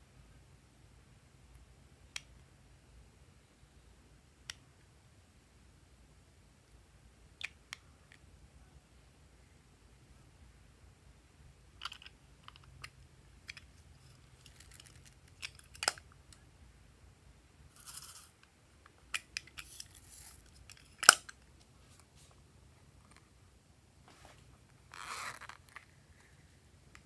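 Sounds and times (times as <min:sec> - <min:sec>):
plastic toy case clicks and snaps: 0:14.5 - 0:16.0, 0:20.6 - 0:21.4
soft rustles: 0:21.6 - 0:23.3, 0:24.0 - 0:26.5.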